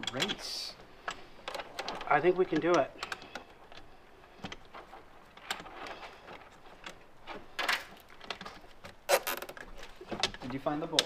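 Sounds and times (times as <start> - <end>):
plastic hose clicks and rustling: 0.0 - 11.0.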